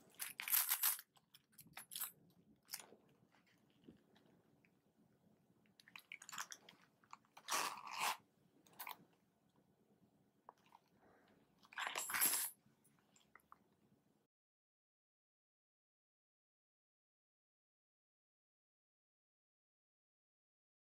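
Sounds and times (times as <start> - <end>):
wallet rustling and scraping: 7.4 - 8.2.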